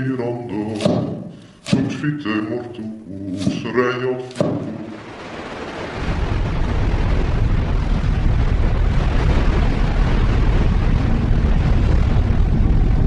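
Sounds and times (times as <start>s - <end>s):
rumbling roar with heavy bass: 5.9s - 13.0s.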